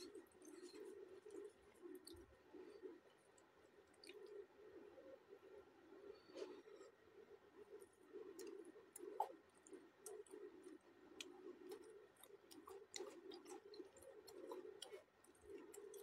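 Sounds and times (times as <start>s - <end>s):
close-up chewing: 0.0s - 4.4s, 7.8s - 16.0s.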